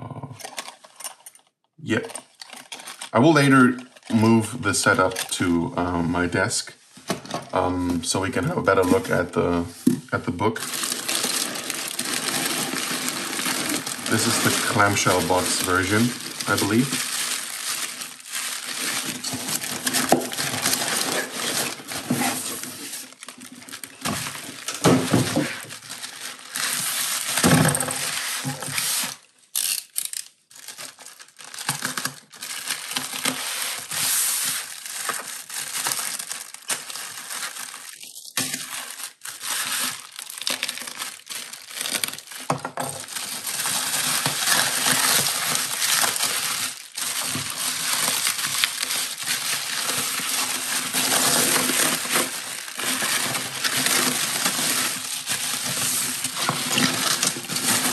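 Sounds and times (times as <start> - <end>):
bubble wrap crinkling: 0.0 - 57.9.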